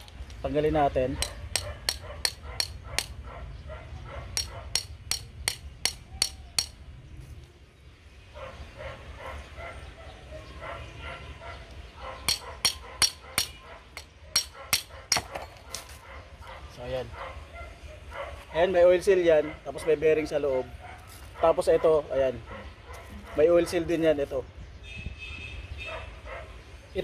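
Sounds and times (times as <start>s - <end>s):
hammer striking metal rod: 1.2s - 3.1s, 4.4s - 6.8s, 12.3s - 15.4s.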